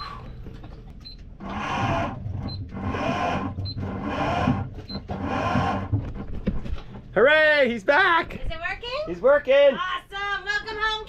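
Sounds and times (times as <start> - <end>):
chain-drive motor running: 1.4 - 5.9.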